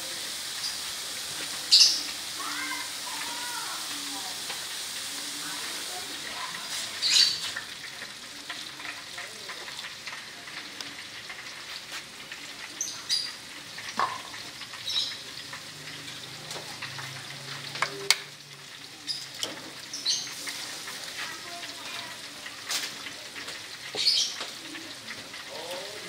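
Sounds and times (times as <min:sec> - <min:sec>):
greens sizzling in hot oil: 0:00.0 - 0:26.0.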